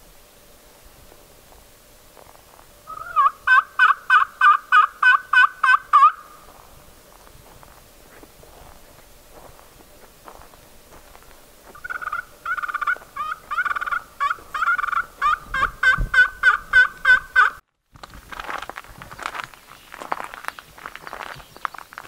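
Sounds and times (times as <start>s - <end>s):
turkey call yelps: 2.9s - 6.4s, 11.7s - 17.6s.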